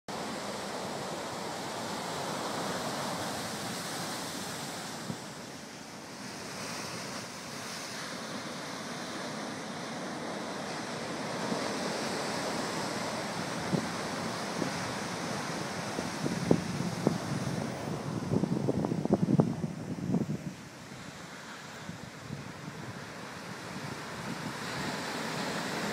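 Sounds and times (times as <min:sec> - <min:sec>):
ocean surf breaking: 0:00.1 - 0:25.9.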